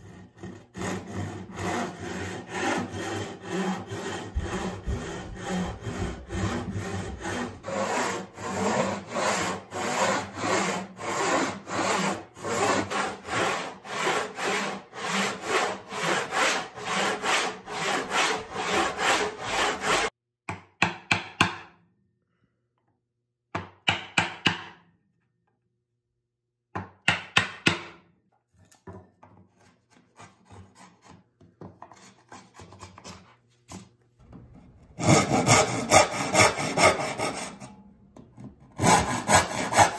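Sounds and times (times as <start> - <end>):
hand saw cutting wood: 0.0 - 20.1, 29.5 - 33.9, 34.6 - 37.8, 38.4 - 39.9
wood rasping strokes: 0.0 - 20.1, 35.0 - 37.7, 38.8 - 39.9.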